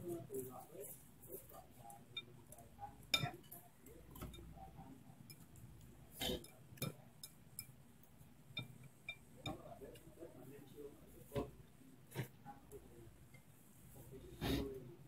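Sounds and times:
utensils clinking on ceramic bowls: 0:03.0 - 0:04.5.

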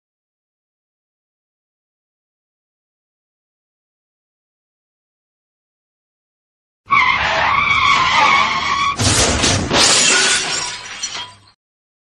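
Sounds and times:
tyres screeching in a skid: 0:06.9 - 0:11.5
vehicle crash clattering: 0:07.0 - 0:11.6.

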